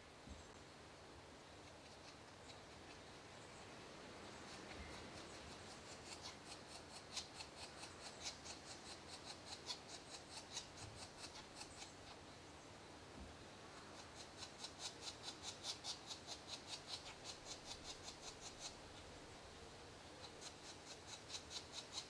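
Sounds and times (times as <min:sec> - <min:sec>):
woodpecker high ticks: 0:01.6 - 0:03.5, 0:04.3 - 0:12.3, 0:13.8 - 0:19.1, 0:20.0 - 0:22.0.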